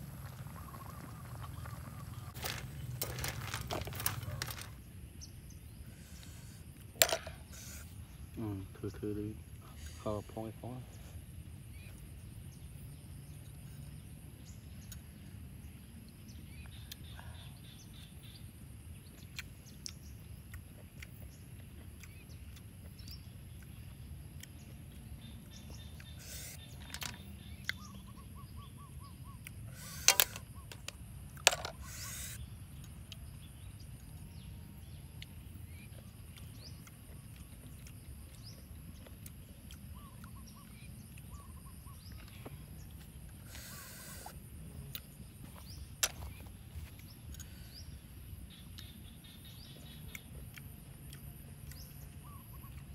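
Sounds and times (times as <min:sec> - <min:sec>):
faint bird calls: 0:25.4 - 0:30.9, 0:31.7 - 0:32.4, 0:39.0 - 0:44.4, 0:47.2 - 0:52.9.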